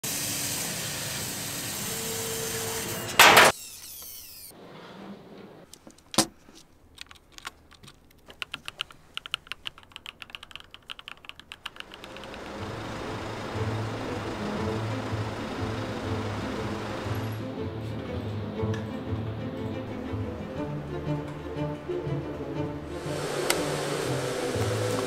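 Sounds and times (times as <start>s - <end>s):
laser cutter hissing: 0.0s - 4.5s, 22.9s - 25.0s
keyboard switches clicking: 7.0s - 12.6s.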